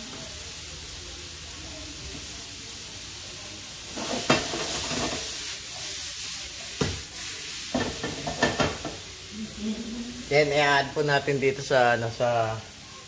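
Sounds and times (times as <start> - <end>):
vegetables sizzling in a pan: 0.0 - 13.0
utensil knocking and scraping pan: 7.7 - 9.0.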